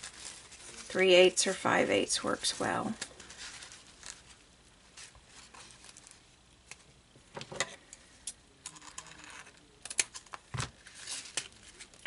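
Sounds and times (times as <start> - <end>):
ribbon crinkling: 0.0 - 1.6, 2.3 - 6.9.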